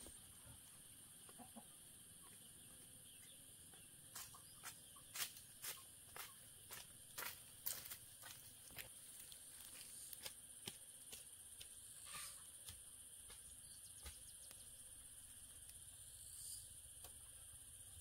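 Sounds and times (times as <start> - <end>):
footsteps on dry leaves: 5.1 - 10.3
high-pitched insect drone: 11.8 - 18.0.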